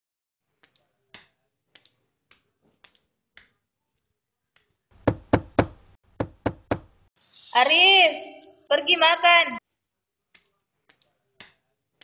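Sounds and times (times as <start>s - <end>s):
sharp knocking: 5.0s - 6.9s.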